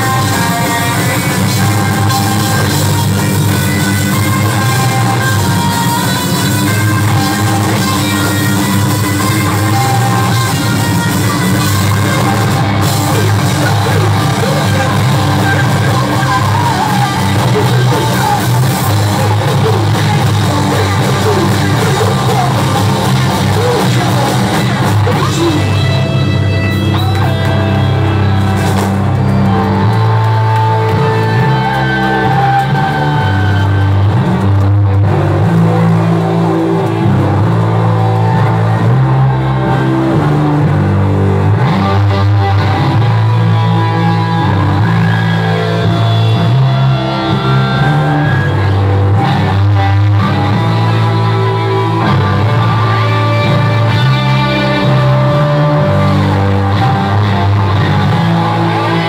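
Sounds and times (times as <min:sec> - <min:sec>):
electric guitar: 0:00.0 - 0:59.0
heavy bass line: 0:00.0 - 0:59.0
live rock band playing: 0:00.0 - 0:59.0.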